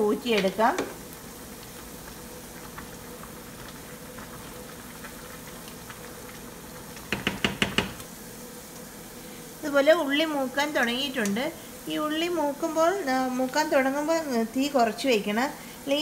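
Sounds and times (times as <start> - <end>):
knocks against pot: 7.1 - 8.0.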